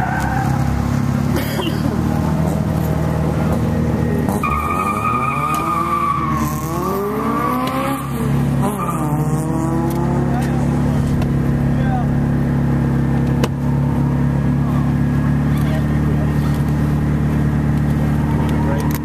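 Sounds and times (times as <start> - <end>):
tire squeal: 0.0 - 0.9, 4.0 - 9.5
car engine revving: 0.0 - 19.0
car engine idling: 10.3 - 19.0.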